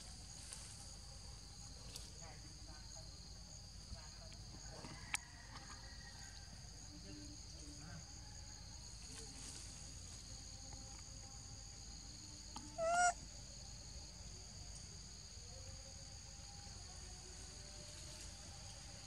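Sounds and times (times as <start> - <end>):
insects droning: 0.0 - 19.0
monkey call: 12.6 - 13.2.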